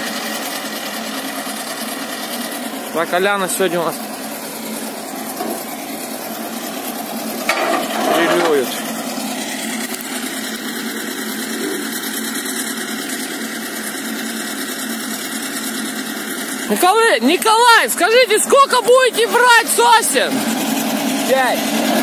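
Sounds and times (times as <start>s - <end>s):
diesel engine idling: 0.0s - 22.0s
loud voice: 16.7s - 20.4s.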